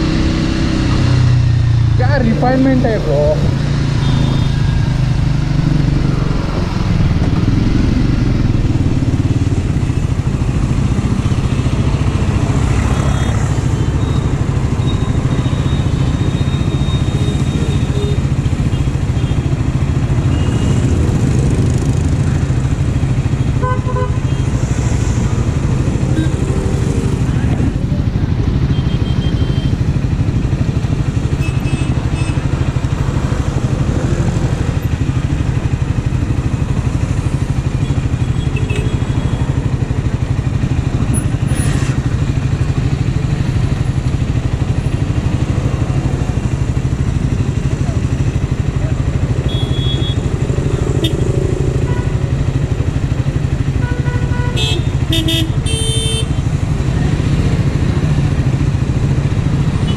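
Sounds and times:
city traffic hum: 0.0s - 59.9s
motorcycle engine idling: 42.1s - 56.8s
short horn beeps: 49.4s - 50.2s.

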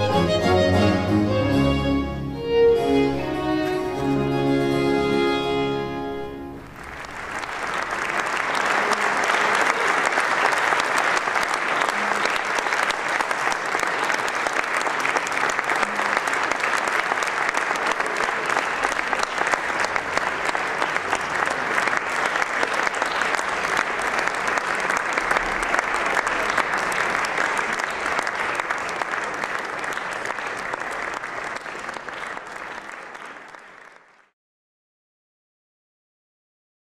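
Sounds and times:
string ensemble chord: 0.0s - 7.0s
audience applauding: 0.0s - 34.4s.

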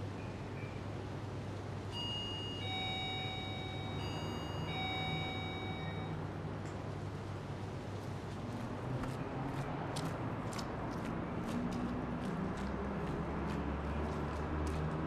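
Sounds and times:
two-note doorbell chime: 1.9s - 6.2s.

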